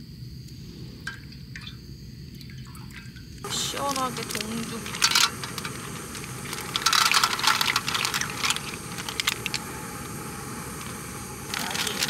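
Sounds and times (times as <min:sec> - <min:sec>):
clam shells clattering: 0:03.5 - 0:09.6.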